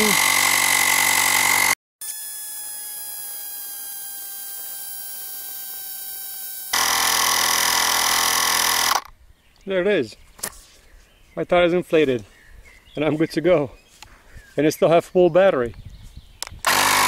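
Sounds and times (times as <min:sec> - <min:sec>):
tire inflator motor buzzing: 0:00.0 - 0:09.1, 0:16.5 - 0:17.0.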